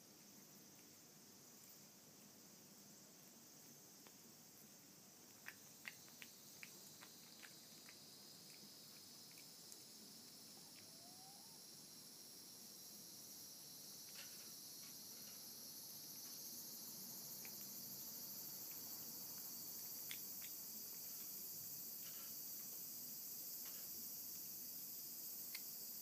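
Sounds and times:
high-pitched hiss: 0:00.0 - 0:26.0
cat chewing soft clicks: 0:05.3 - 0:10.0.

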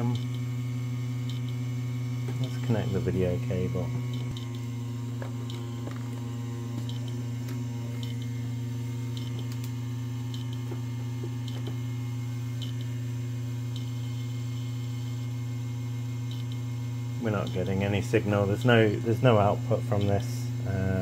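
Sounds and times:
computer power supply fan hum: 0:00.0 - 0:21.0
hard drives spinning: 0:00.0 - 0:21.0.

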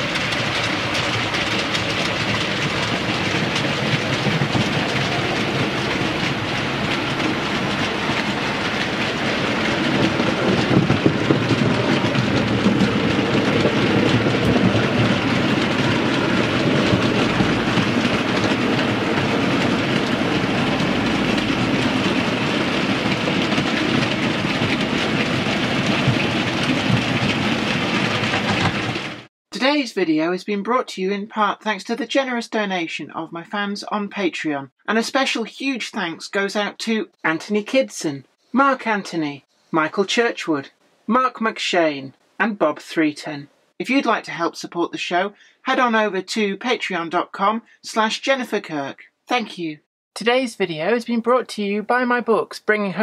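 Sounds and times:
model train wheels clicking: 0:00.0 - 0:29.3.

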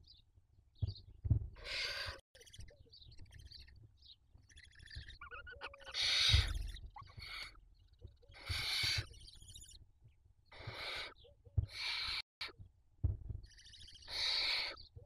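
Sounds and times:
owl chicks hissing begging calls: 0:01.6 - 0:02.6, 0:04.5 - 0:07.6, 0:08.3 - 0:09.8, 0:10.5 - 0:12.3, 0:13.5 - 0:14.9.

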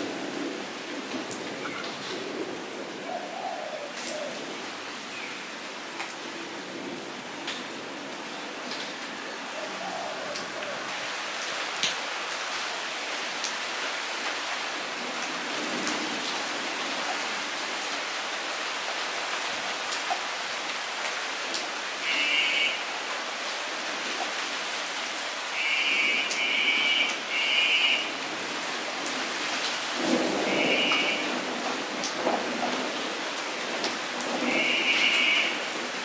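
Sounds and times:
rain falling into a puddle: 0:00.0 - 0:03.0, 0:10.3 - 0:36.0.

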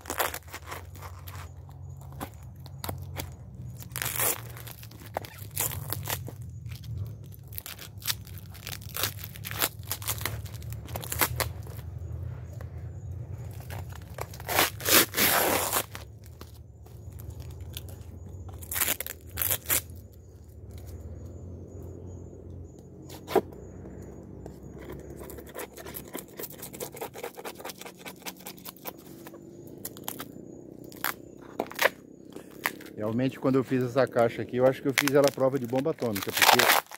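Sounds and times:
plastic wrapping ripping: 0:00.0 - 0:01.5, 0:02.8 - 0:11.8, 0:13.6 - 0:16.4, 0:18.6 - 0:20.0, 0:34.9 - 0:36.9
small crackling rips: 0:00.0 - 0:12.0, 0:13.4 - 0:20.1, 0:28.1 - 0:33.0, 0:34.9 - 0:36.9.

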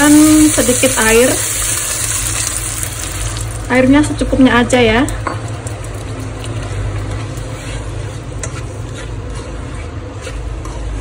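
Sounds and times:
faint sizzle: 0:00.0 - 0:08.2
induction hob hum: 0:00.0 - 0:11.0
spatula scraping and tapping: 0:05.2 - 0:11.0.

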